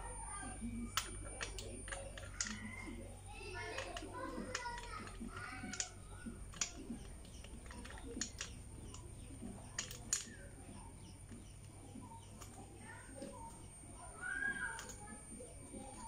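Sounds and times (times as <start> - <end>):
light metallic clicks and taps: 3.6 - 12.6.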